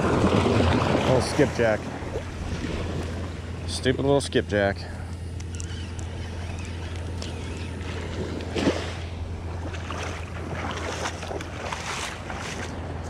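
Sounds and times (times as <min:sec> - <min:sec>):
small waves washing over sand: 0:00.0 - 0:03.4, 0:07.8 - 0:13.0.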